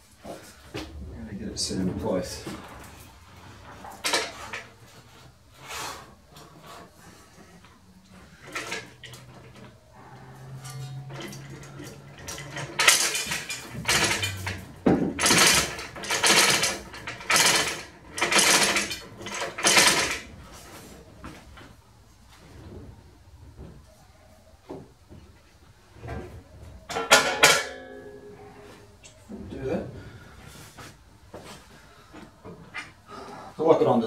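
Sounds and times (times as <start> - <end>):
hand chain clinking and rattling: 10.4 - 20.2.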